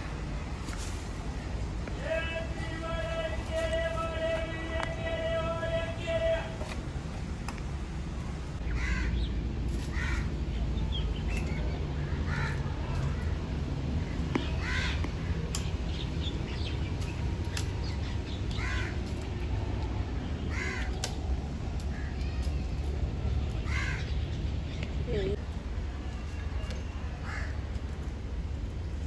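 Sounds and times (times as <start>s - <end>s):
steady low rumble: 0.0s - 29.0s
bird cawing: 8.6s - 10.4s, 12.0s - 13.3s, 14.4s - 15.4s, 18.5s - 19.3s, 20.4s - 21.2s, 23.6s - 24.2s, 27.2s - 27.8s.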